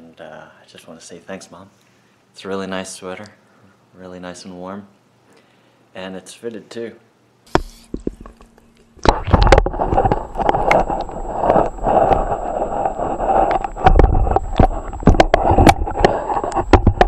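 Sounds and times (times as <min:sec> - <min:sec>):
sharp clicks and knocks: 0:07.5 - 0:17.0.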